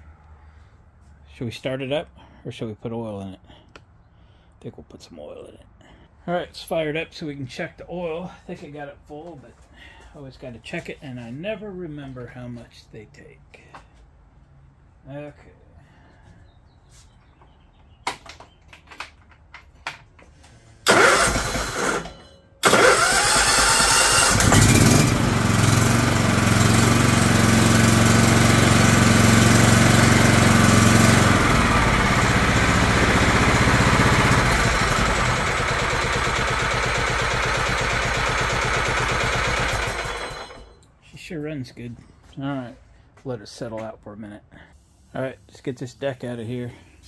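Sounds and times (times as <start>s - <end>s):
lawn tractor engine running: 20.8s - 40.8s
starter cranking engine: 20.8s - 40.8s.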